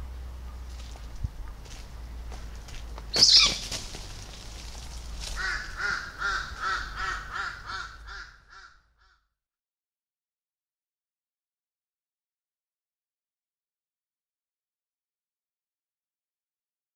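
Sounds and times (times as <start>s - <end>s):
bird harsh call: 3.1s - 3.8s, 5.4s - 9.1s.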